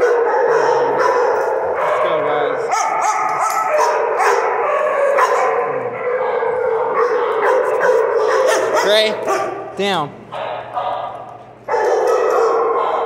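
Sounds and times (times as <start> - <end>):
dogs barking: 0.0 - 13.0.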